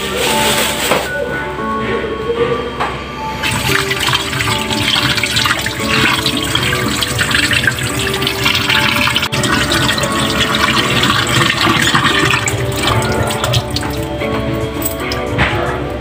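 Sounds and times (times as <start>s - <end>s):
tap water splashing into sink: 3.4s - 14.1s.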